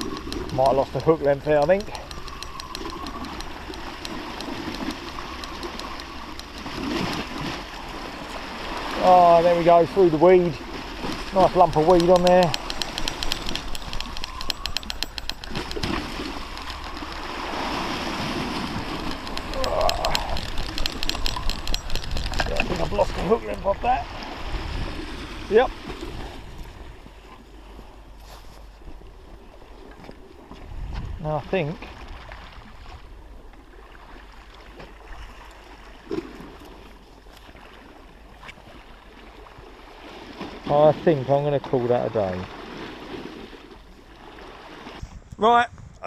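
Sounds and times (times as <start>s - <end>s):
fishing reel clicking: 0.0s - 7.6s, 11.0s - 23.4s
waves washing against sea wall: 0.0s - 28.0s, 28.9s - 45.1s
wind noise on microphone: 11.0s - 29.4s, 30.0s - 33.3s, 44.8s - 46.0s.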